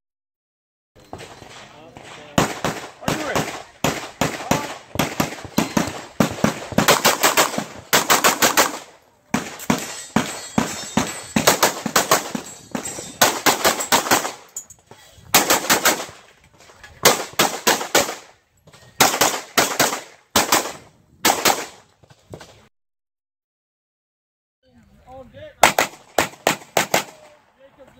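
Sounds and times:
pistol shots: 1.1 - 14.5, 15.3 - 16.2, 17.0 - 18.3, 19.0 - 21.8, 25.6 - 27.3.

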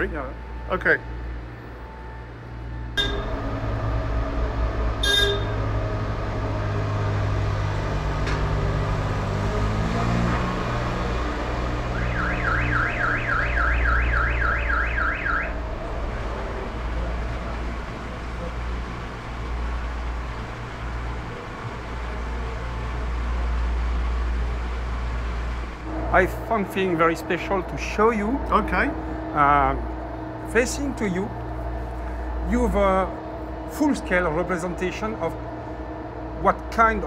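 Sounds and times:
warbling electronic warning alarm: 0.0 - 6.7, 11.7 - 15.9
low machinery hum: 0.0 - 37.0
works vehicle running: 0.0 - 37.0
short beeps: 3.0 - 3.3, 5.0 - 5.6.

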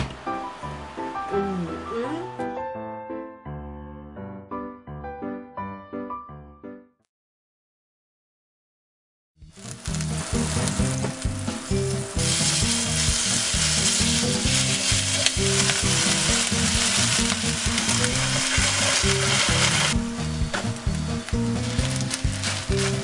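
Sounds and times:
chicken sizzling in oil: 9.4 - 23.0.

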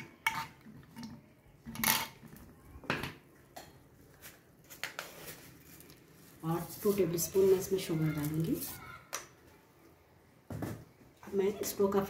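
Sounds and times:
spoon scraping and clinking in pot: 0.0 - 1.0.

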